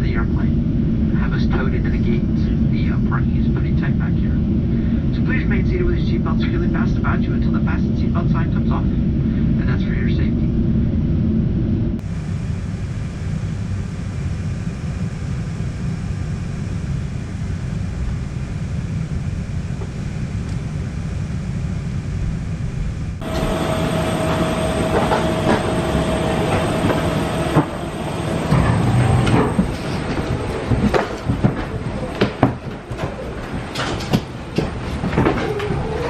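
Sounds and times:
steady hum: 0.0s - 35.4s
airplane cabin rumble: 0.0s - 36.0s
footsteps and knocks: 23.2s - 35.8s.

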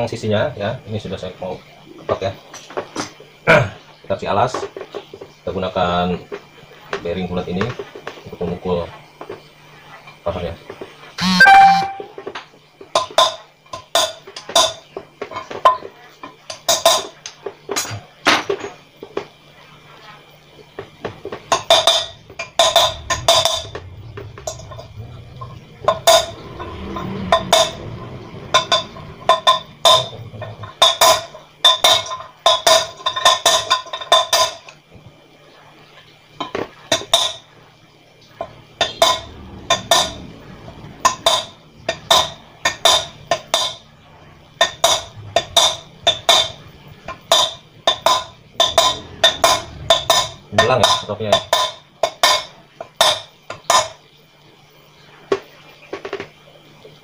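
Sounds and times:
hammer striking metal drift: 11.2s - 12.1s.

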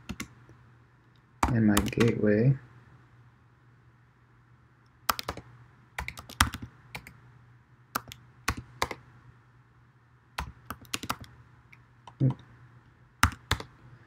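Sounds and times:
computer keyboard typing: 0.0s - 0.3s, 1.4s - 2.2s, 5.1s - 7.2s, 8.0s - 9.0s, 10.4s - 11.4s, 13.2s - 13.7s.

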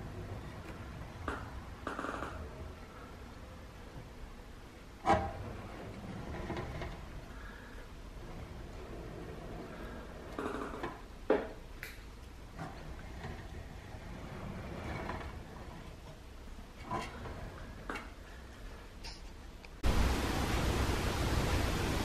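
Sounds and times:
loud steady hiss: 19.8s - 22.0s.

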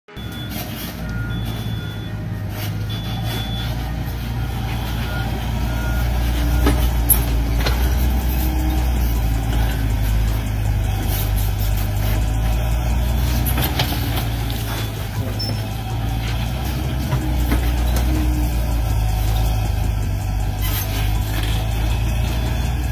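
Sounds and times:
short high beeps: 0.1s - 7.4s
heavy engine drone: 0.1s - 22.9s.

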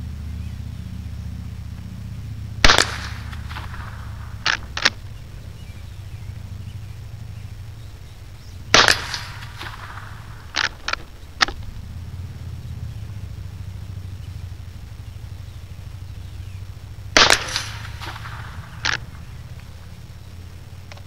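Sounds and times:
steady low rumble: 0.0s - 21.0s
gunshot: 2.6s - 5.0s, 8.7s - 11.0s, 17.2s - 19.1s
short sharp clicks: 2.6s - 5.2s
smaller crack: 2.6s - 5.5s, 8.7s - 12.6s, 16.7s - 21.0s.

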